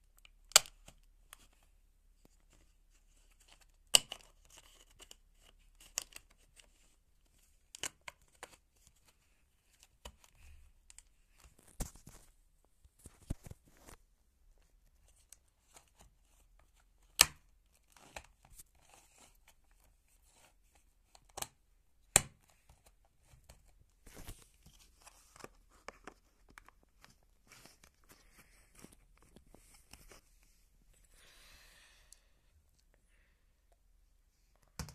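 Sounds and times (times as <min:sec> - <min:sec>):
plastic scraping and rustling: 0:22.4 - 0:30.7.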